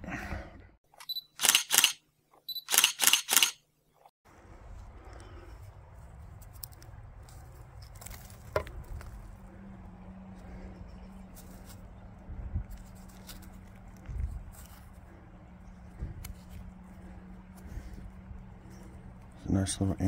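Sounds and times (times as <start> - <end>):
camera focus beep: 1.0 - 1.9, 2.5 - 3.5
camera shutter clicks: 1.0 - 2.0, 2.6 - 3.6
hands rustling in dirt: 4.6 - 19.4.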